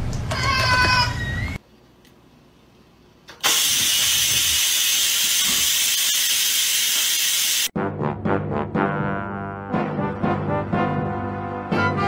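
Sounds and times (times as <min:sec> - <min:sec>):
rice cooker venting steam: 0:03.4 - 0:07.7.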